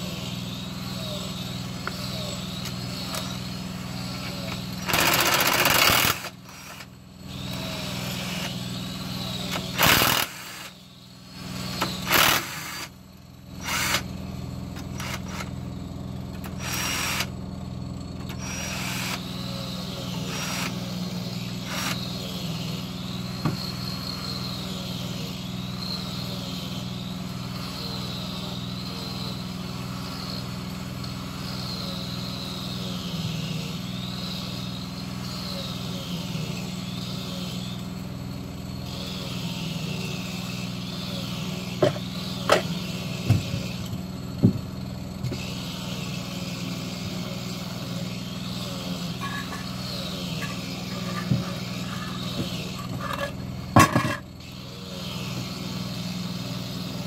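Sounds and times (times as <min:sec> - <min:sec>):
mechanical hum with low pulse: 0:00.0 - 0:57.0
power tool bursts: 0:01.8 - 0:14.2, 0:14.8 - 0:15.6, 0:16.3 - 0:17.4, 0:18.3 - 0:22.4, 0:45.3 - 0:54.2.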